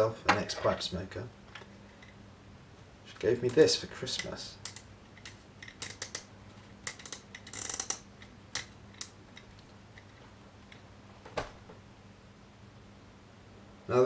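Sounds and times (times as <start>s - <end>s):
pipe clicking in hands: 4.2s - 10.8s.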